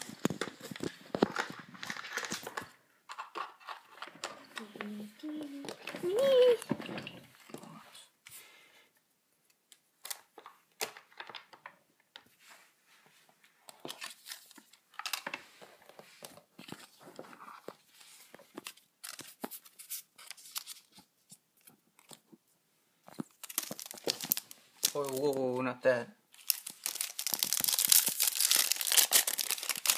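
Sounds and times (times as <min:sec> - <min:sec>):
cards being handled: 0:13.7 - 0:22.3, 0:23.1 - 0:25.4, 0:26.4 - 0:29.9
wrappers being torn open: 0:23.3 - 0:25.3, 0:26.4 - 0:29.9.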